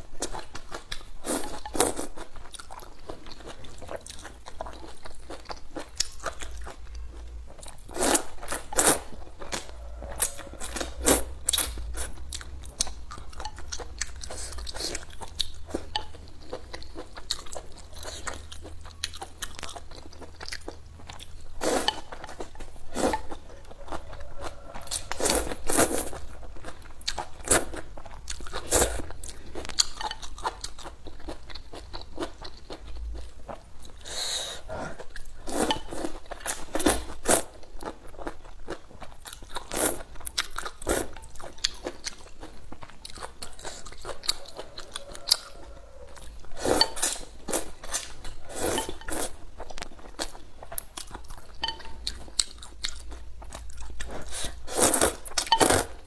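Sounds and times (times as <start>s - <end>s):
person chewing: 0.0s - 56.0s
slurping: 43.4s - 49.4s, 54.2s - 56.0s.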